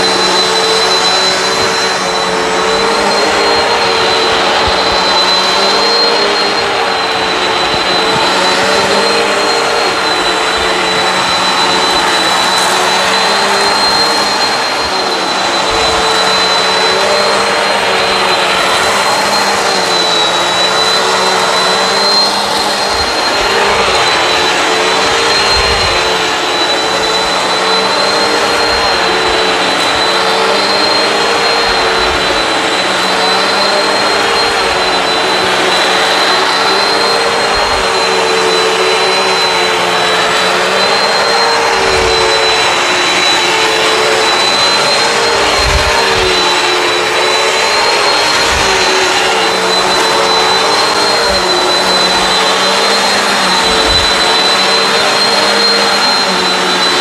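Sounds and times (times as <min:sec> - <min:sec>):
vacuum cleaner whining on carpet: 0:00.0 - 0:57.0.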